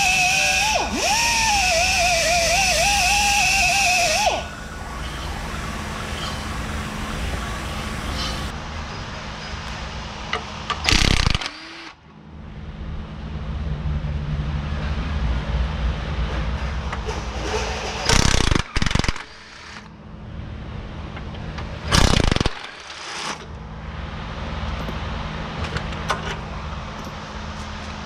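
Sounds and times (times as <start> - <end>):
air drill whine: 0.0 - 8.5, 10.8 - 12.0, 17.4 - 19.9, 21.9 - 23.4
exhaust air hiss: 0.0 - 8.5
low shop hum: 0.0 - 28.0.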